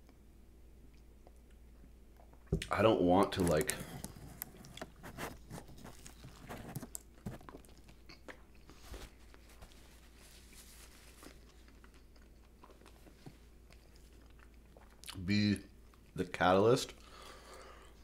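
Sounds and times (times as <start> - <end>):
chewing sandwich crunching: 3.4 - 15.2.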